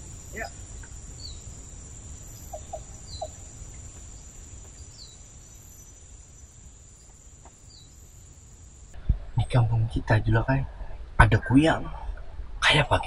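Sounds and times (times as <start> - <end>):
insects droning: 0.0 - 13.0
low rumble: 8.9 - 13.0.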